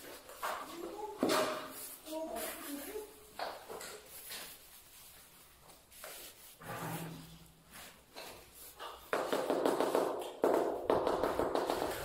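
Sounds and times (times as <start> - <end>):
light knocks and scrapes: 5.6 - 9.2.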